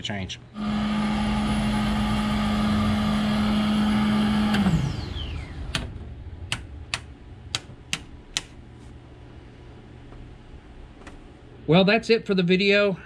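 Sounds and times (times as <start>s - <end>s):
electric motor humming: 0.6s - 6.0s
motor spinning down whine: 0.6s - 6.5s
switches clicking: 5.7s - 8.6s.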